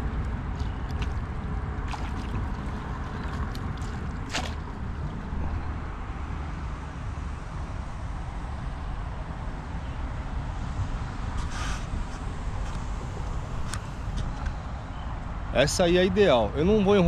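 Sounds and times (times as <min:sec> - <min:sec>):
water splashes and drips: 0:00.5 - 0:05.3.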